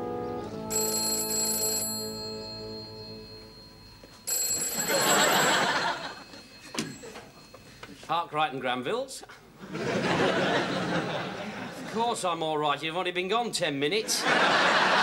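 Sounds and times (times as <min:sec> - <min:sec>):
telephone bell ringing: 0:00.7 - 0:08.1.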